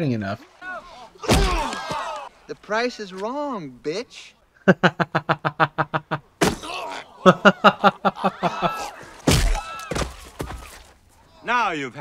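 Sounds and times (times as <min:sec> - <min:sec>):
punch thuds: 0:01.2 - 0:02.1, 0:09.2 - 0:10.7
man laughing hard: 0:07.2 - 0:08.9.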